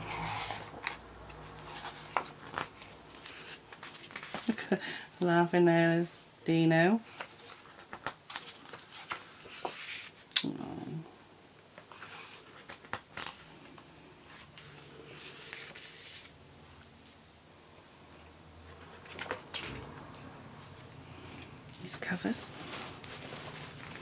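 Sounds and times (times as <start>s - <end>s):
book pages turning: 0.0s - 4.8s, 7.1s - 10.5s, 11.7s - 16.4s, 18.7s - 21.4s, 22.5s - 24.0s.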